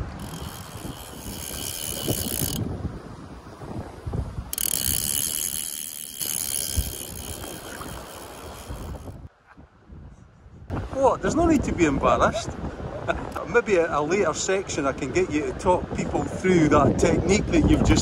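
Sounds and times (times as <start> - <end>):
fly reel ratchet buzzing: 0.0 - 2.7, 4.5 - 9.3.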